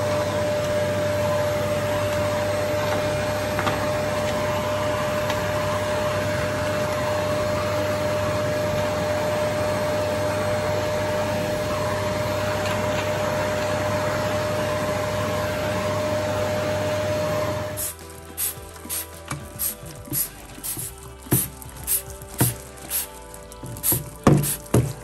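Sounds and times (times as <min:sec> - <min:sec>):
vacuum cleaner whining: 0:00.0 - 0:25.0.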